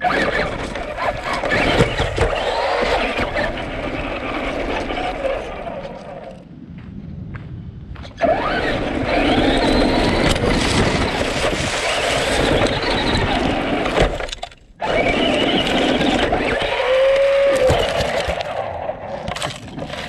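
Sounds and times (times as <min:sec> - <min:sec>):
electric motor whine: 0:08.2 - 0:18.5.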